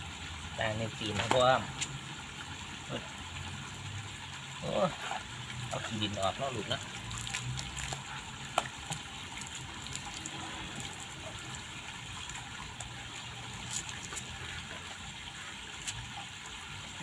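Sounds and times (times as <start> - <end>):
water rushing: 0.0 - 17.0
water poured from dipper: 6.6 - 16.4.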